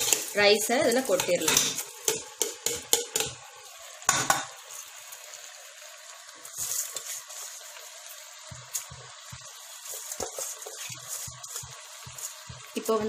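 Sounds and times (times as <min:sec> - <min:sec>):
steel spoon scraping pan: 0:00.0 - 0:00.4, 0:09.9 - 0:12.4
rice rushing into pan: 0:00.0 - 0:12.8
food sizzling: 0:00.0 - 0:13.0.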